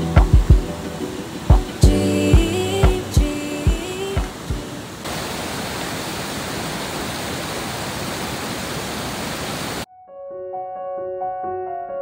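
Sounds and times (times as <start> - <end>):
piano music: 0.0 - 4.9, 9.9 - 12.0
waterfall rushing: 0.0 - 9.9.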